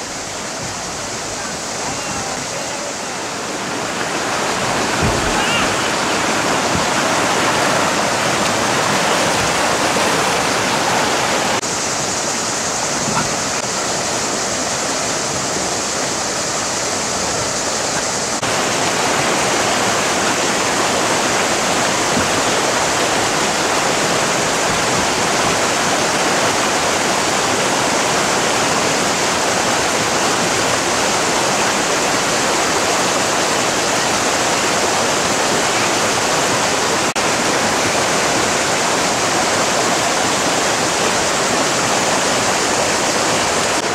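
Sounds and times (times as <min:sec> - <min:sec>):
water rushing over rocks: 0:00.0 - 0:43.9.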